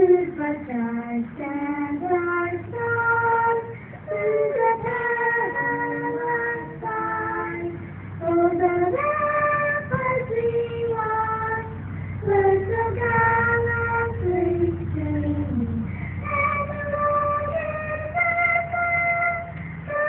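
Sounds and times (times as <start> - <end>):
high solo voice singing: 0.0 - 20.0.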